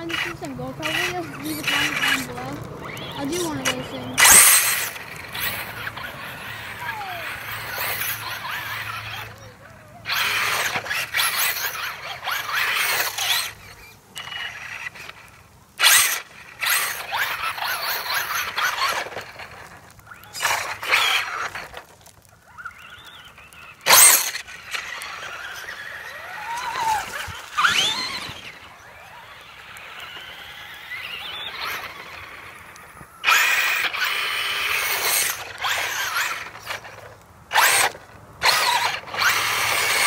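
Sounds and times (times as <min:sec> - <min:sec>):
tyres churning wet mud: 0:00.0 - 0:13.6, 0:15.8 - 0:32.4
electric motor whining: 0:00.0 - 0:40.0.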